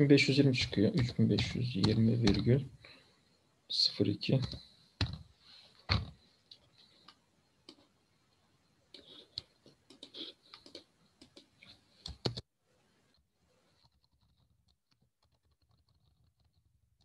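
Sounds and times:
computer mouse and keyboard clicks: 9.0 - 12.4, 13.8 - 17.0.

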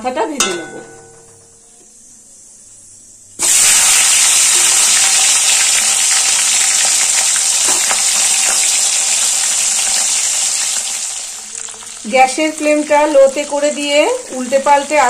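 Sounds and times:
fish sizzling in hot oil: 3.4 - 15.0.

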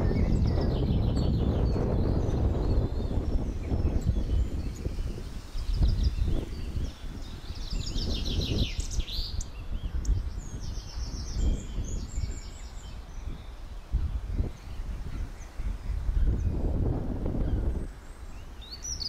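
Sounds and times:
small birds singing: 0.0 - 19.0
wind rumble on microphone: 0.0 - 19.0.

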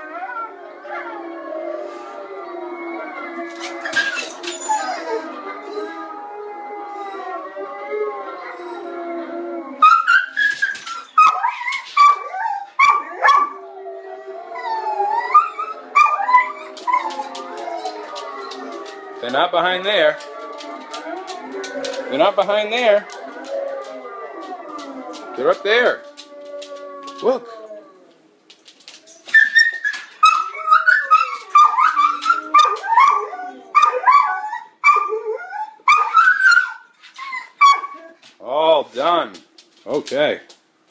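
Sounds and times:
wolves howling through speakers: 0.0 - 28.3, 29.6 - 36.8
dog whining yelps: 3.5 - 5.8, 9.8 - 13.6, 29.3 - 38.2.

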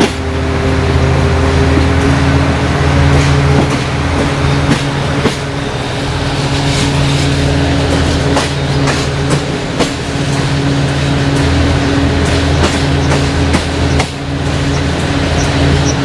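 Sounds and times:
locomotive low hum: 0.0 - 16.0
train running noise: 0.0 - 16.0
train wheels clicking over rail joints: 0.0 - 16.0.

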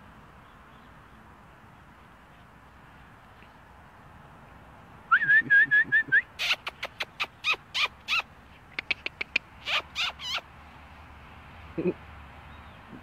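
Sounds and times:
person whistling short notes: 5.1 - 6.3
high falling calls: 5.1 - 10.5.

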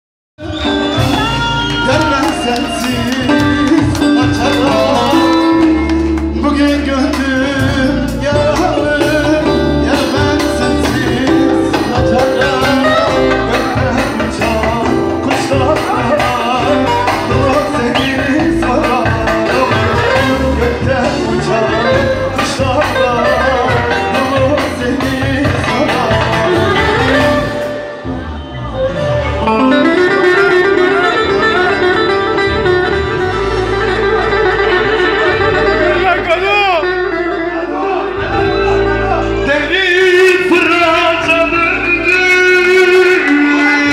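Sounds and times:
man singing into a microphone: 0.4 - 27.7, 37.2 - 43.9
lute playing folk music: 0.4 - 43.9.

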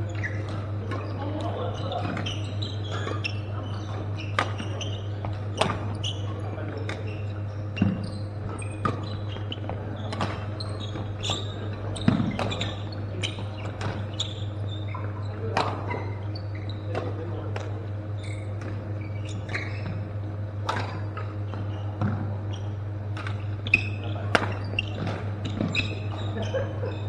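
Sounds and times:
steady low hum: 0.0 - 27.0
rackets striking shuttlecocks: 0.2 - 14.2, 19.8 - 22.4, 23.1 - 26.2.

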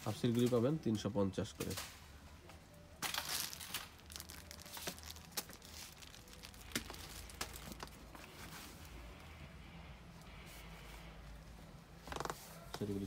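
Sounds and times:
plastic wrapping crinkling: 3.0 - 8.9.

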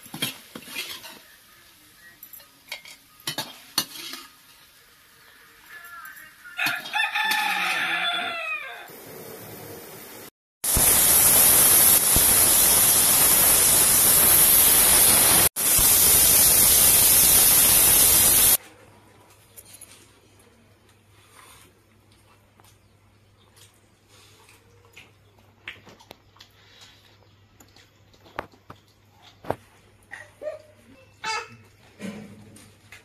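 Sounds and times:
rooster crowing: 6.6 - 8.9
pressure cooker whistling: 10.6 - 18.6.

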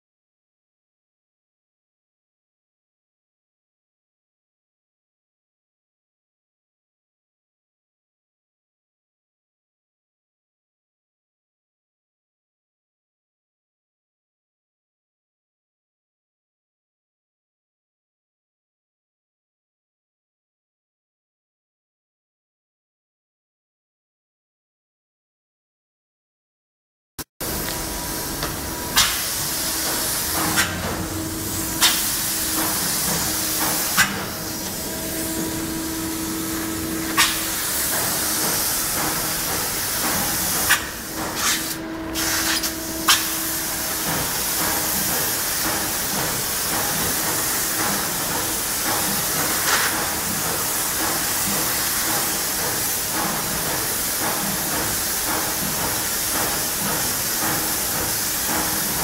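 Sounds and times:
spray gun hissing: 27.4 - 59.0.

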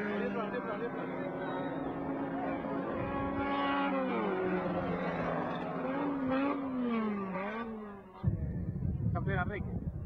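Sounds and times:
race car engines at high revs: 0.0 - 8.5.

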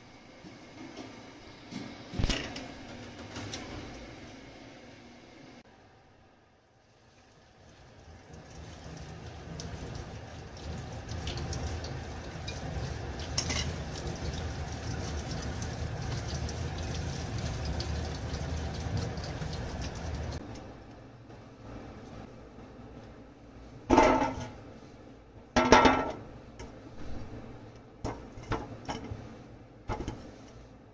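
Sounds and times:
tap water running into colander: 7.0 - 20.4.

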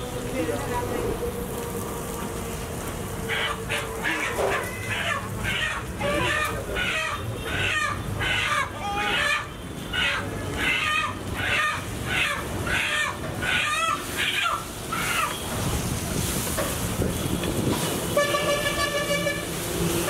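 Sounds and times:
bird calling: 3.3 - 15.4.

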